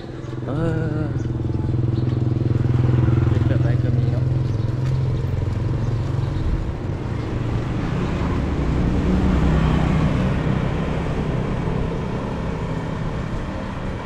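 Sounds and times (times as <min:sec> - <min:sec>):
small motorbike engine running: 0:00.0 - 0:07.1.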